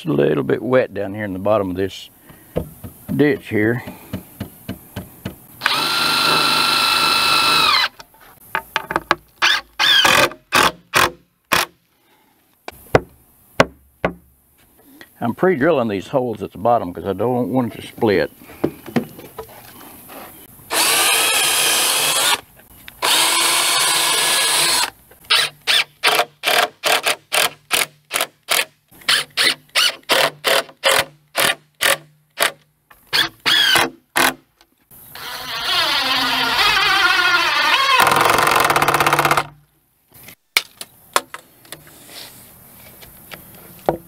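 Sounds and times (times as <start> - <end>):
electric drill drilling wood: 5.6 - 7.9, 20.7 - 22.4, 23.0 - 27.1, 33.4 - 33.8, 35.1 - 39.5.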